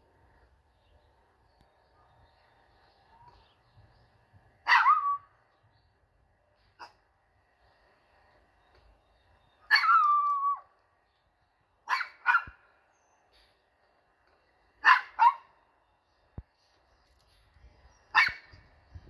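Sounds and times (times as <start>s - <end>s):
small dog barking: 4.6s - 5.2s, 9.7s - 10.4s, 11.8s - 12.6s, 14.8s - 15.5s, 18.1s - 18.5s.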